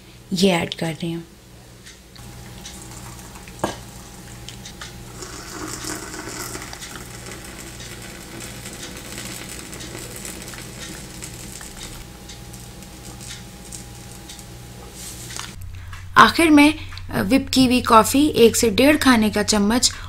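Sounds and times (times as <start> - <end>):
milk pouring into foam: 2.2 - 14.3.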